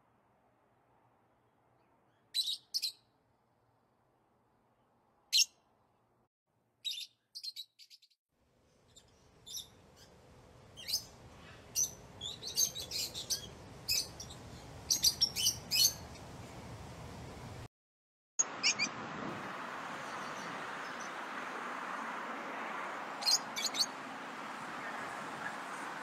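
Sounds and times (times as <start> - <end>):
lovebirds chirping: 1.8 - 3.2, 5.3 - 5.6, 6.8 - 8.2, 8.8 - 16.4, 18.4 - 19.0, 23.2 - 24.0.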